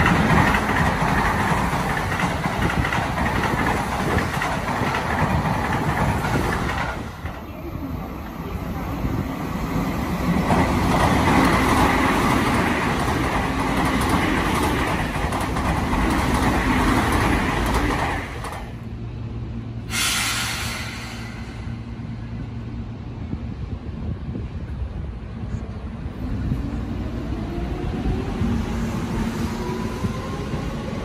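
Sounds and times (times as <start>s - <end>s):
low steady train hum: 0.0s - 31.0s
train passing at speed: 0.0s - 31.0s
short hiss: 19.9s - 21.9s.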